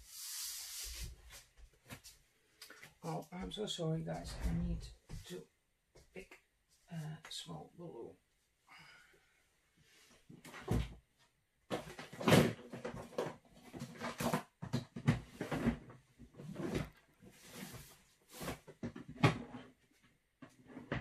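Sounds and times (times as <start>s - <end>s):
objects knocking and rustling: 11.7s - 21.0s.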